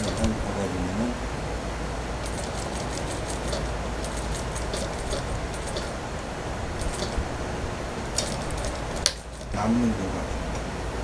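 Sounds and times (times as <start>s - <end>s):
sewing machine stitching: 2.2s - 6.0s.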